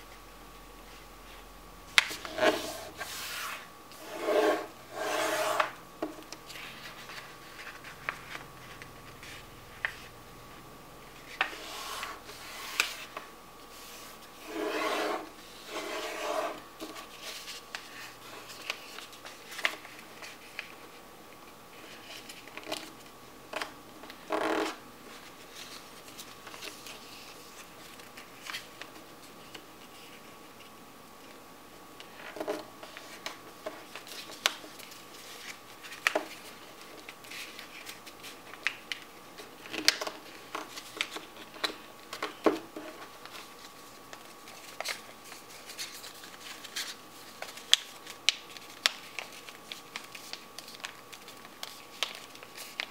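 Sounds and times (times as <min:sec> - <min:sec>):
paper folding and rubbing: 0:02.0 - 0:05.8, 0:06.5 - 0:10.1, 0:11.2 - 0:20.9, 0:42.8 - 0:52.9.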